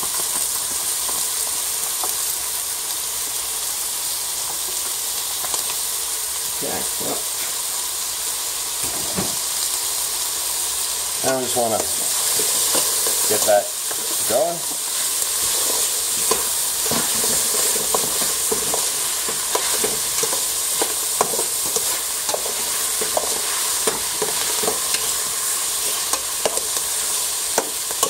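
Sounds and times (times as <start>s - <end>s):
vegetables sizzling in a pot: 0.0s - 28.0s
utensil scraping pot: 11.2s - 28.0s.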